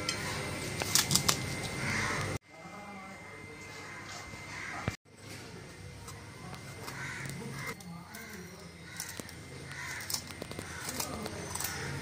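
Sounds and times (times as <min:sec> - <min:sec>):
bird cawing: 0:01.7 - 0:02.4, 0:03.8 - 0:05.0, 0:06.8 - 0:12.0.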